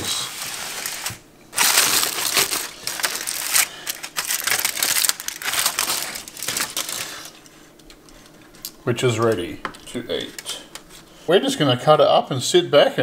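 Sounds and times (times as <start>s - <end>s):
aluminium foil crinkling: 0.0s - 11.2s.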